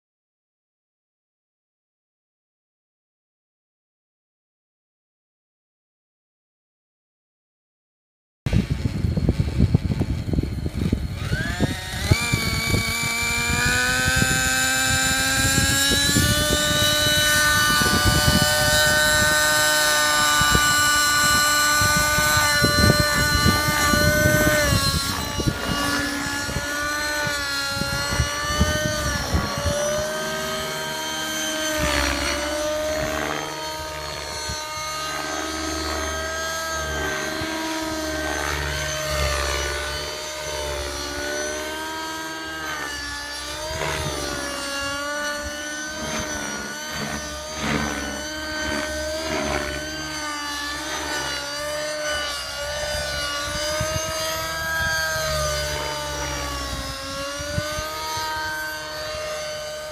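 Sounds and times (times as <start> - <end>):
wind buffeting microphone: 8.5 - 35.0, 41.6 - 59.9
model helicopter engine whine: 8.5 - 59.9.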